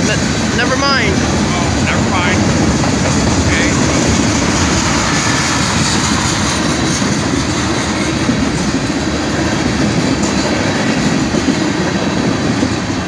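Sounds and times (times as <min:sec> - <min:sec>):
freight train wheels rumbling: 0:00.0 - 0:13.0.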